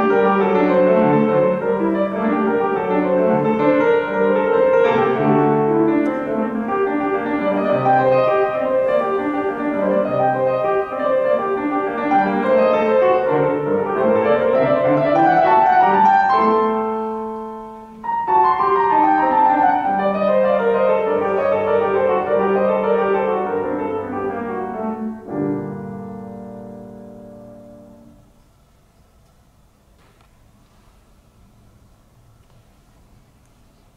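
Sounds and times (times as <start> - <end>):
grand piano classical passage: 0.0 - 33.9.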